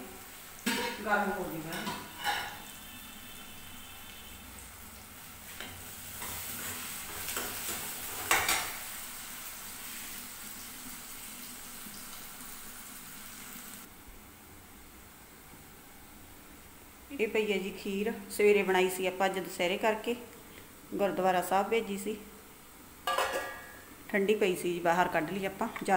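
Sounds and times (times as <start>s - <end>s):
onion mixture sizzling in a pan: 0.0s - 13.9s
steel ladle scraping a pan: 1.7s - 3.6s.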